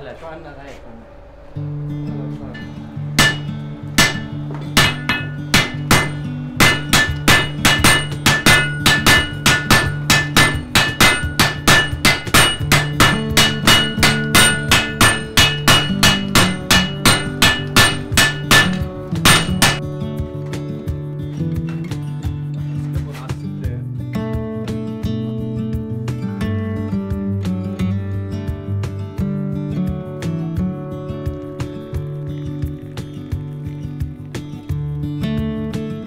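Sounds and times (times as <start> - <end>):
background music: 0.0 - 36.0
hammers forging steel on anvil: 2.5 - 19.8.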